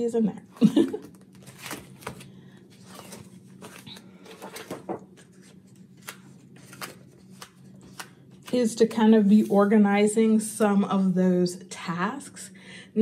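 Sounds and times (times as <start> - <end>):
paper pages rustling: 1.0 - 9.7.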